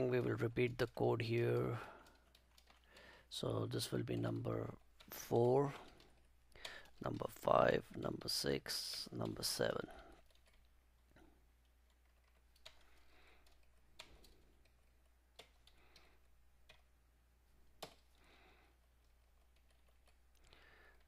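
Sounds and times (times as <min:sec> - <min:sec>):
computer keyboard key clicks: 0:11.9 - 0:16.9, 0:17.8 - 0:18.2.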